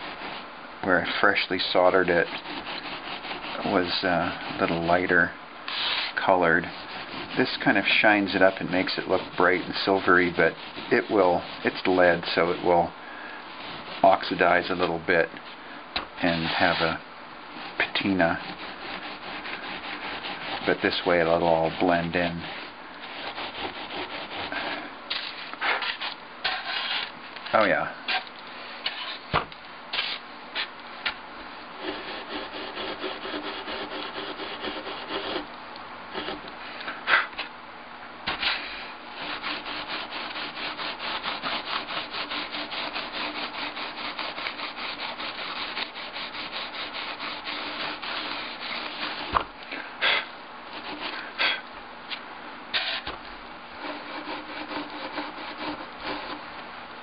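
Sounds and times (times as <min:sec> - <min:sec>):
steel wool scrubbing metal: 0:01.1 - 0:15.2, 0:16.2 - 0:17.0, 0:17.6 - 0:27.1, 0:38.3 - 0:49.4, 0:53.8 - 0:56.4.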